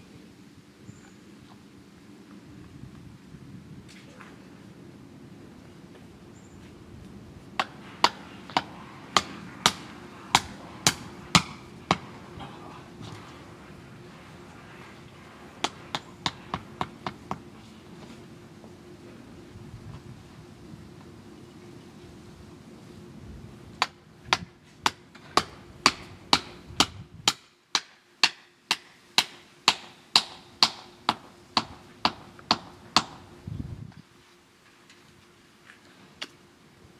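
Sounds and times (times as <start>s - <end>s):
hammer striking metal: 7.6s - 12.0s, 27.3s - 33.2s.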